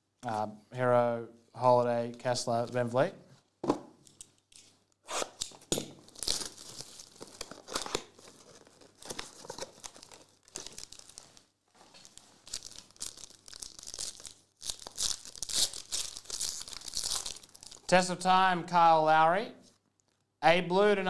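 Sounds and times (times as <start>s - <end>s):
foil pack crinkling: 6.0s - 17.9s.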